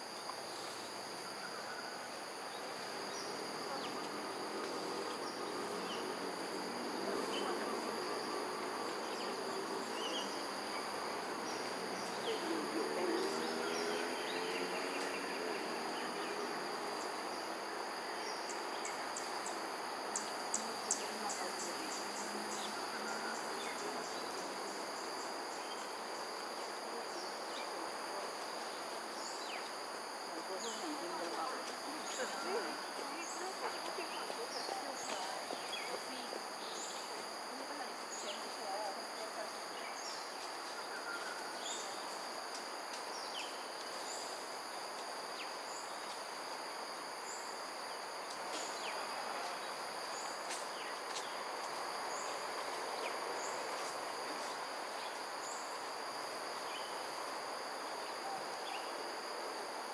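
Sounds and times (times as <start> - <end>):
insects chorus high tones: 0.0 - 59.9.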